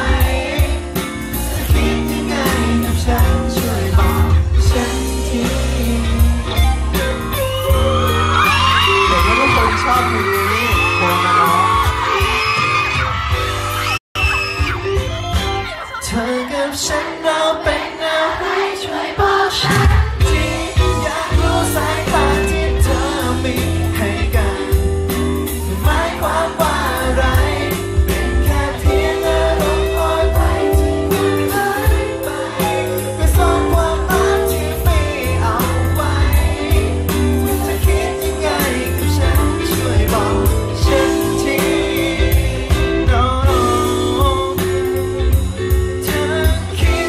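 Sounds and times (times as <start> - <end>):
live pop song: 0.0 - 47.0
person singing: 19.5 - 47.0.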